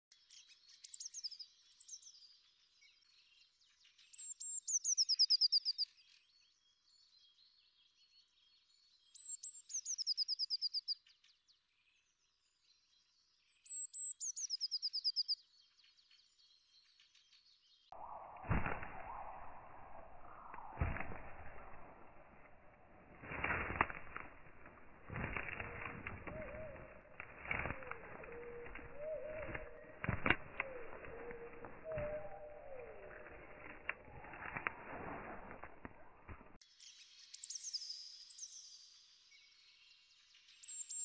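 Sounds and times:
songbird singing: 0:00.0 - 0:41.0
low rustling noise: 0:18.0 - 0:36.6.

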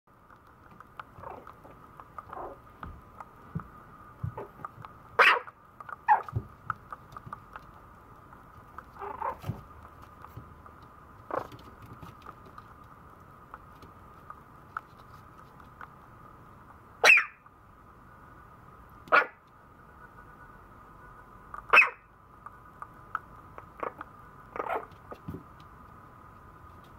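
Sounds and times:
puppy barking: 0:05.2 - 0:06.4, 0:09.0 - 0:09.4, 0:17.0 - 0:17.4, 0:19.1 - 0:19.4, 0:21.7 - 0:22.1, 0:23.8 - 0:24.9.

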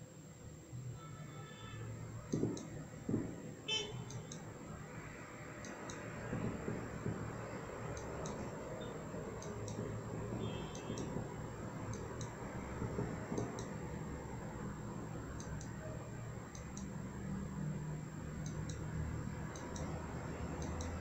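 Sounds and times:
faint high-pitched electronic whine: 0:00.0 - 0:12.8
computer mouse clicking: 0:02.3 - 0:02.8, 0:04.1 - 0:04.5, 0:05.6 - 0:06.2, 0:07.9 - 0:10.0, 0:10.7 - 0:11.2, 0:11.8 - 0:12.4, 0:13.1 - 0:13.8, 0:15.3 - 0:15.8, 0:16.5 - 0:17.0, 0:18.4 - 0:21.0.

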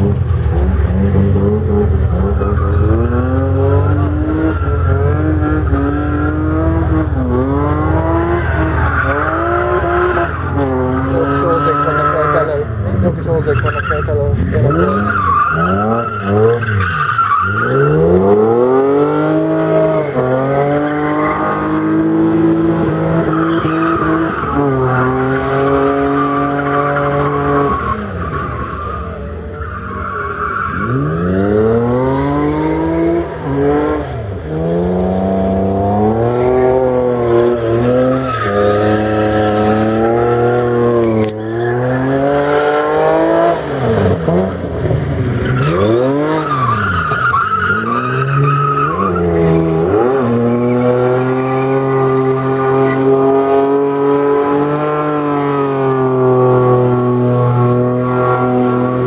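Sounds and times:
car engine revving hard: 0:00.0 - 0:29.2, 0:30.7 - 0:59.0
tyres squealing: 0:08.2 - 0:12.7.

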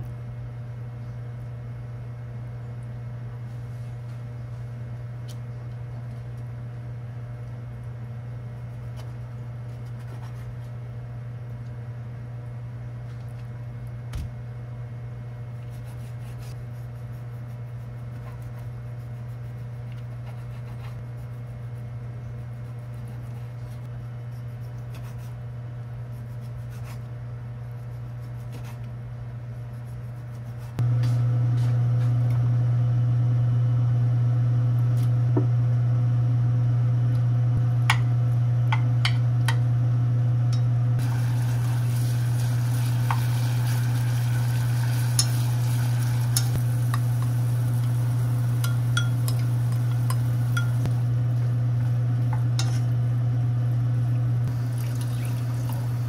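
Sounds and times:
electric appliance hum: 0:00.0 - 0:24.3, 0:30.8 - 0:56.0.

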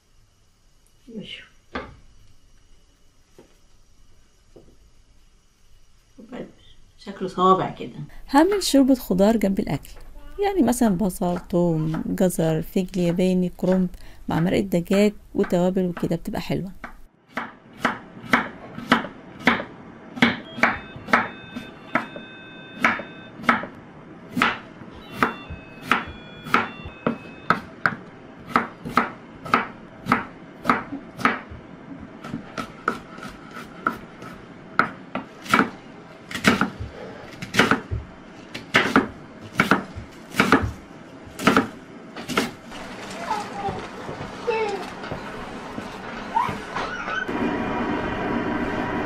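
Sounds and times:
knife chopping on wooden board: 0:16.8 - 0:21.3, 0:25.2 - 0:31.6, 0:32.2 - 0:40.8, 0:41.4 - 0:42.6.

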